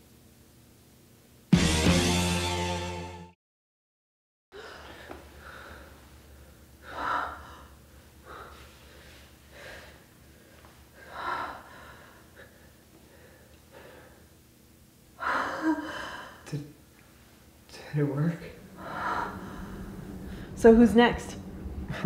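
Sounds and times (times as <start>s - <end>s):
low steady hum: 4.6s - 22.0s.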